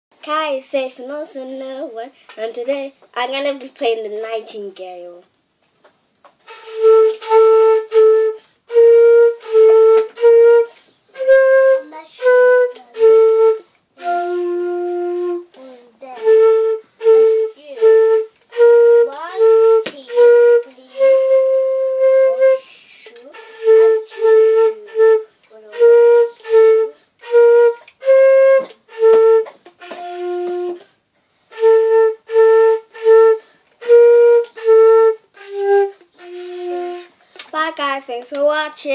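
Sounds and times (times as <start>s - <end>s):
solo flute melody: 6.4s - 37.2s.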